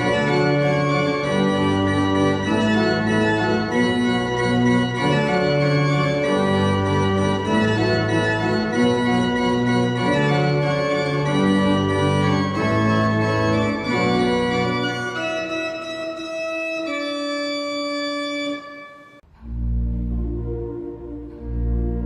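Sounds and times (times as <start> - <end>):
pipe organ playing chords: 0.0 - 22.0.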